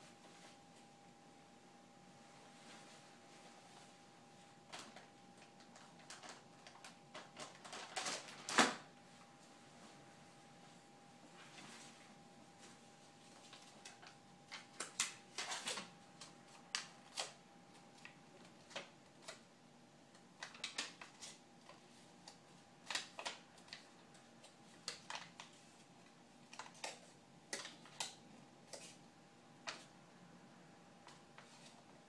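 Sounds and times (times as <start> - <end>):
wrapper crinkling: 4.7 - 8.8.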